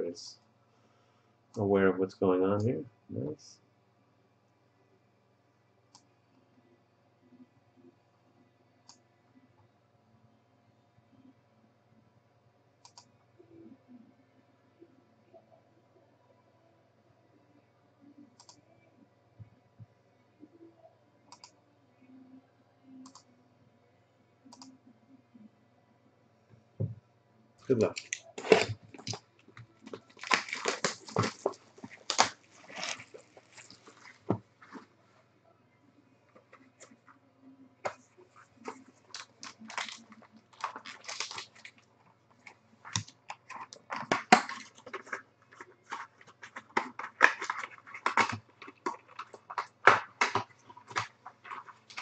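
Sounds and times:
cardboard and foil crinkling: 28.0 - 29.2, 29.8 - 34.8, 38.6 - 52.0.

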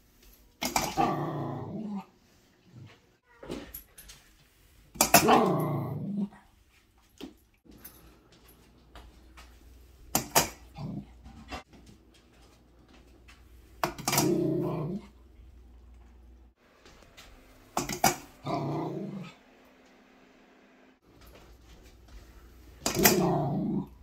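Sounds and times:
puppy growling: 0.6 - 2.1, 5.2 - 6.4, 14.1 - 15.8, 18.4 - 19.4, 22.8 - 24.0.

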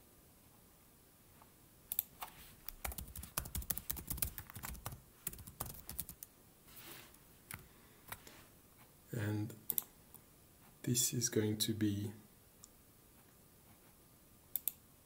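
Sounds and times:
typing on keyboard: 2.7 - 6.3.

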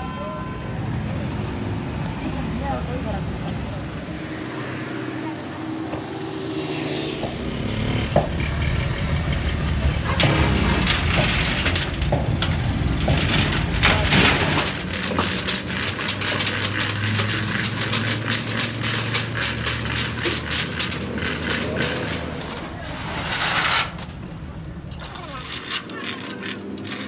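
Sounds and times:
small engine running: 7.0 - 22.6, 25.0 - 27.0
metal knocks and clanks: 8.0 - 27.0
hoist chain clinking: 10.0 - 27.0.

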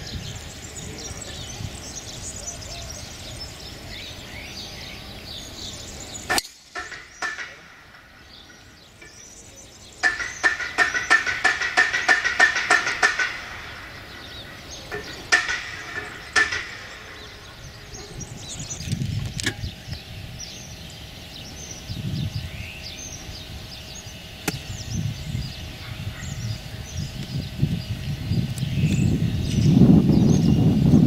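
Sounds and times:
birds chirping: 0.0 - 31.0
low rumbling: 0.0 - 31.0.

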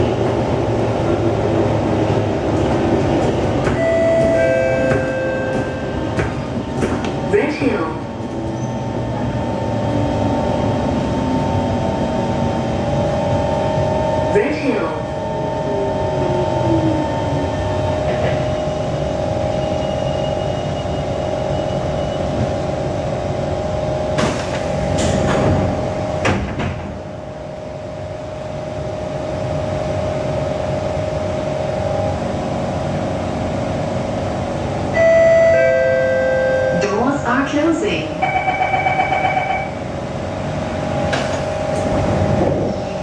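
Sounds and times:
falling whine of slowing train: 0.0 - 43.0
train electrical hum: 0.0 - 43.0
train doors sliding open: 1.9 - 9.3, 17.6 - 19.0, 24.1 - 27.4, 40.5 - 43.0.

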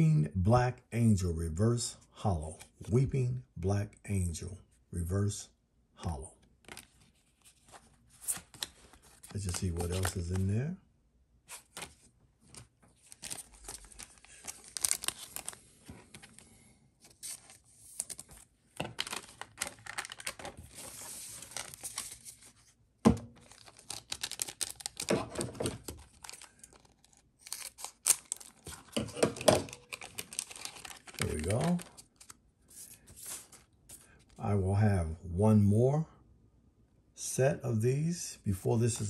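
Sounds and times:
wrapper tearing and crinkling: 13.0 - 15.6, 18.9 - 22.5, 23.4 - 32.4.

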